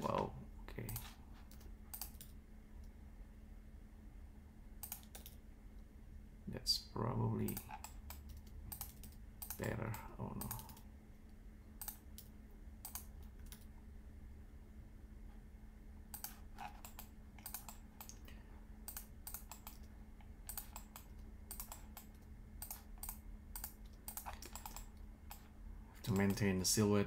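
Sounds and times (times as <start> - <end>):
keyboard and mouse clicks: 0.0 - 2.9, 4.8 - 5.4, 7.4 - 9.7, 10.4 - 10.8, 11.8 - 13.7, 16.1 - 18.3, 18.9 - 25.5
faint steady hum: 0.0 - 27.0.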